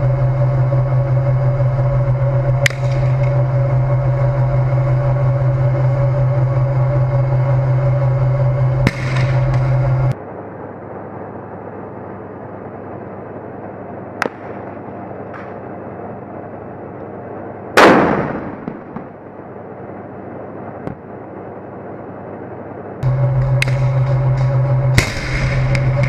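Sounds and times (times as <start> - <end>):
tank diesel engine drone: 0.0 - 26.0
distant gunshot cracks: 14.2 - 14.7, 17.8 - 19.2
heavy cannon blast: 17.8 - 19.2, 25.0 - 26.0
muffled noise bed: 18.7 - 26.0.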